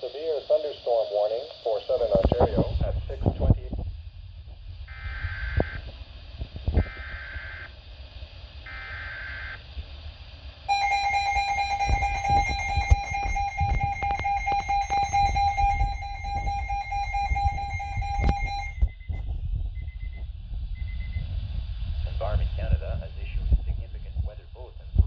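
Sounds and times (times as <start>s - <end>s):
low rumble: 2.2s - 25.0s
warbling data tones: 4.8s - 7.8s, 8.6s - 9.7s, 10.6s - 21.2s
buzzy alert alarm tone: 10.7s - 19.0s
scattered clicks: 11.8s - 16.6s, 17.3s - 18.5s.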